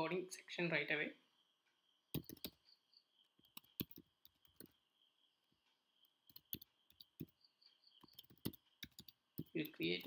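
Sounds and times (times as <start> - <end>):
typing on computer keyboard: 2.1 - 2.6, 3.4 - 4.8, 6.3 - 7.4, 8.0 - 10.0.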